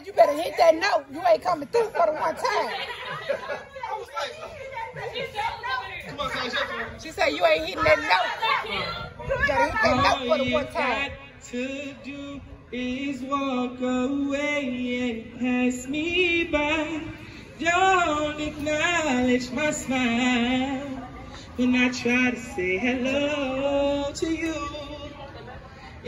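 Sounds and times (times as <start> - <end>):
man singing through speaker: 9.5 - 26.0.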